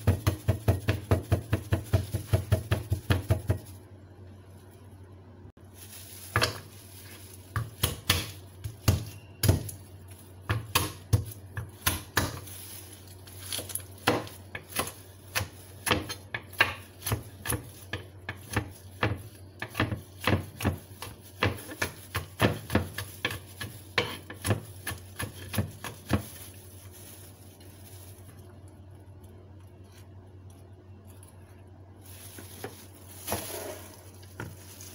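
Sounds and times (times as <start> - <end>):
knife chopping on wooden board: 0.0 - 3.6.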